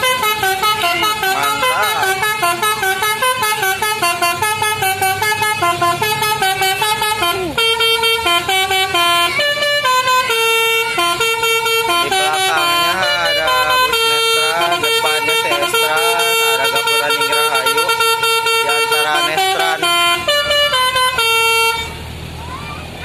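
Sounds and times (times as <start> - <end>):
bus horn playing a tune: 0.0 - 22.1.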